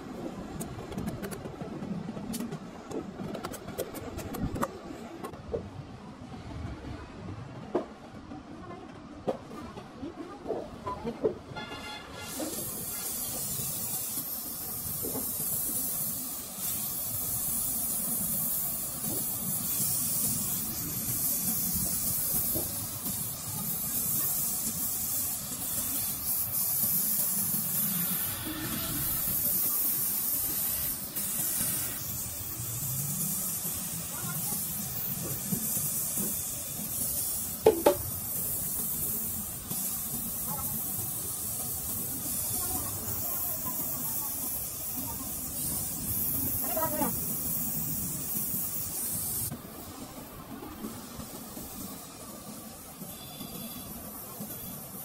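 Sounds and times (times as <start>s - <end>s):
gas torch flame hissing: 11.6s - 55.0s.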